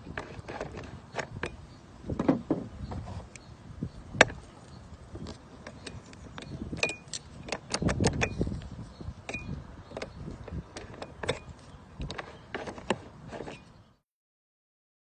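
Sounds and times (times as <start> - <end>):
metal tools clicking in a lock: 5.7 - 8.4, 9.3 - 12.2.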